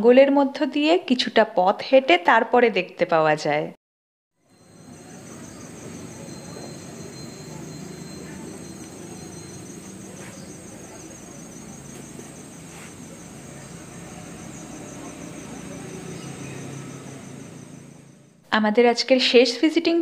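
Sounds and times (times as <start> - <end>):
insects chirring: 4.4 - 18.4.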